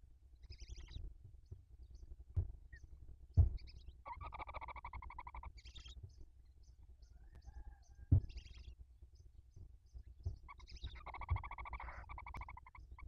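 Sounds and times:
dull thumps: 2.4s - 2.6s, 3.4s - 3.7s, 8.1s - 8.4s
owl rattling buzzy call: 4.0s - 5.6s, 10.5s - 13.0s
owl hissing: 11.0s - 12.8s.

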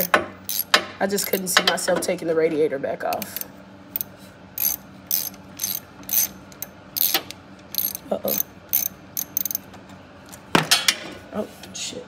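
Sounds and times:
socket ratchet clicking: 0.0s - 1.5s, 3.1s - 9.7s.

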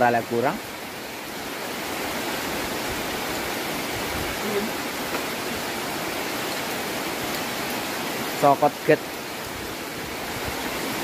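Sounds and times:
heavy rain falling: 0.0s - 11.0s.

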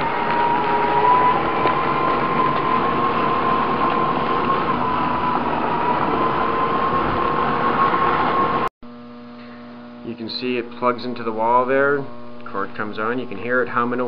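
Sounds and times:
garden tractor rolling: 0.0s - 8.7s
electric motor whine: 0.0s - 10.1s.

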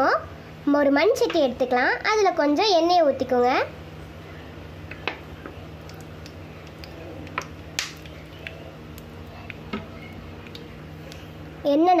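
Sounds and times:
steady low hum: 0.0s - 12.0s
oil ticking and crackling: 4.9s - 11.6s.

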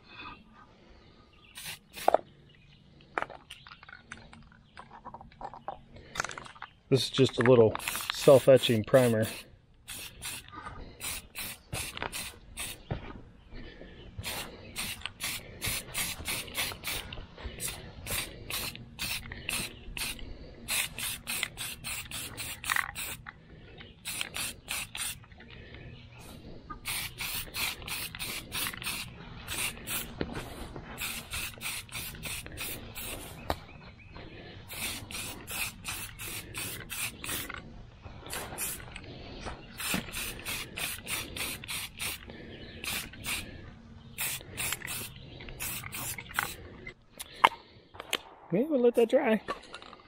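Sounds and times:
spray can hissing bursts: 1.6s - 2.2s, 7.8s - 12.9s, 14.2s - 23.2s, 24.0s - 25.2s, 26.8s - 33.6s, 34.7s - 37.5s, 38.3s - 38.9s, 39.7s - 42.2s, 42.8s - 43.5s, 44.2s - 46.6s.

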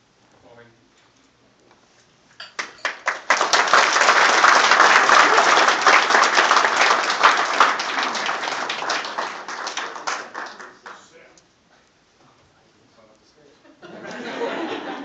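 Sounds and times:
audience applauding: 2.6s - 11.3s.

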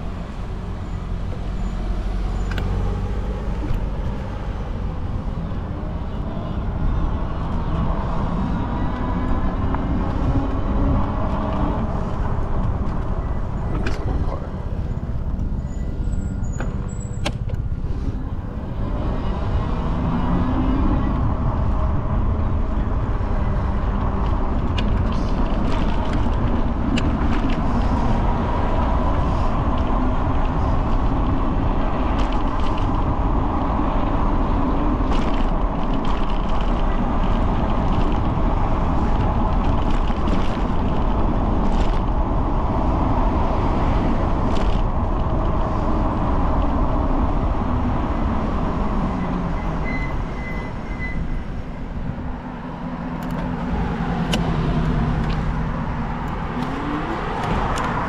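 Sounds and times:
vehicle road and engine noise: 0.0s - 58.0s.

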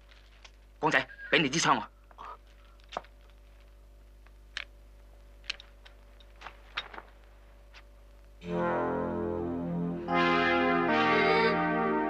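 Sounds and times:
low steady hum: 0.0s - 12.0s
dramatic score with distorted guitar: 8.4s - 12.0s.

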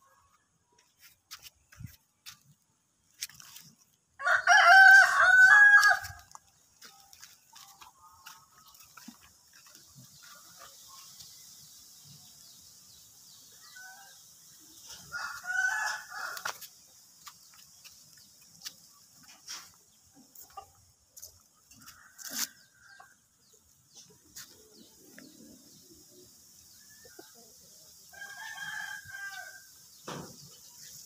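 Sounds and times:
rooster crowing: 4.2s - 6.2s, 15.0s - 16.5s, 28.1s - 29.7s.

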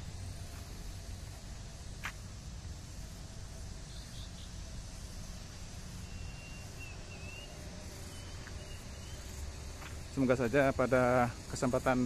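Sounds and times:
low outdoor rumble: 0.0s - 12.0s
thin high wavering chirp: 3.8s - 12.0s.

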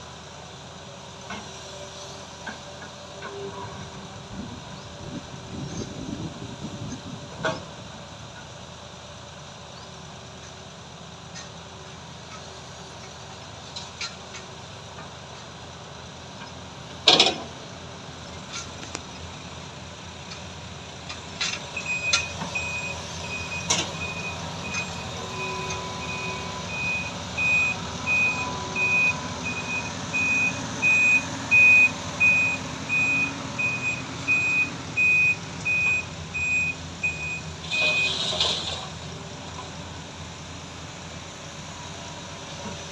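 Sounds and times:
heavy diesel machinery running: 0.0s - 42.9s
truck reversing alarm beeps: 21.5s - 38.8s.

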